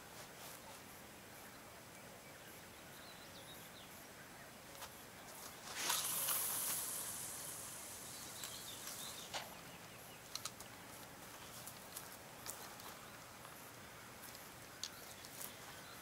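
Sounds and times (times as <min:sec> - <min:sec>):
fishing line hiss: 0:05.5 - 0:09.6
fishing rod swish: 0:05.6 - 0:07.2.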